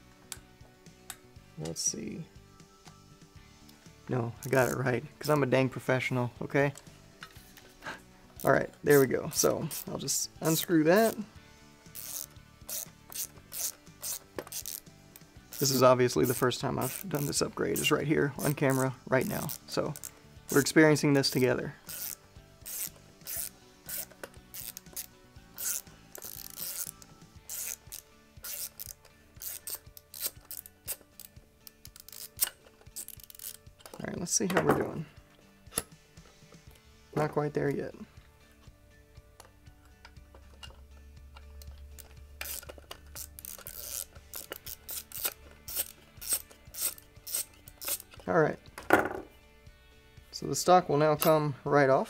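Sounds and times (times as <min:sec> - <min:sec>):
ratcheting driver clicking: 0:12.0 - 0:17.9, 0:21.9 - 0:34.0, 0:39.4 - 0:48.2.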